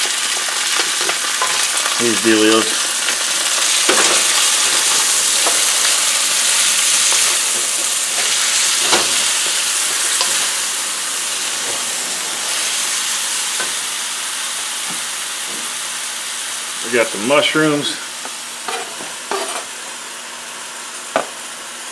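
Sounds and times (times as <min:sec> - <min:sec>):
vegetables sizzling in a wok: 0:00.0 - 0:21.9
wooden spatula scraping pan: 0:18.7 - 0:19.7.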